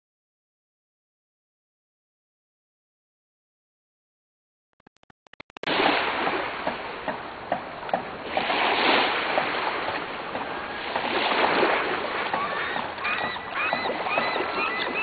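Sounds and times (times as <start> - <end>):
small waves splashing on shore: 5.6 - 15.0.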